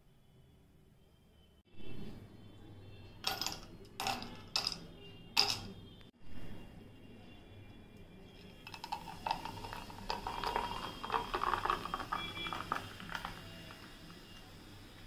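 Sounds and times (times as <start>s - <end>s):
soft drink fizzing over ice: 8.4s - 15.0s
faint hiss of bubbles: 8.8s - 15.0s.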